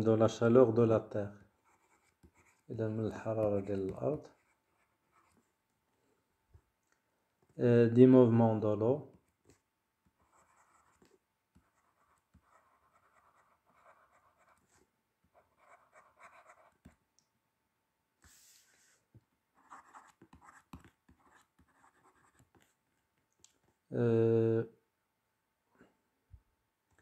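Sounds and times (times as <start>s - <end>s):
pen scratching on paper: 1.6s - 2.7s, 3.3s - 5.5s, 10.2s - 17.0s, 19.6s - 22.8s.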